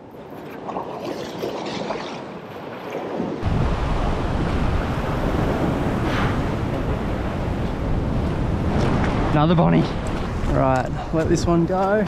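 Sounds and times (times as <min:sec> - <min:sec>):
ocean surf washing over rocks: 0:02.8 - 0:12.0
wind buffeting microphone: 0:03.0 - 0:12.0.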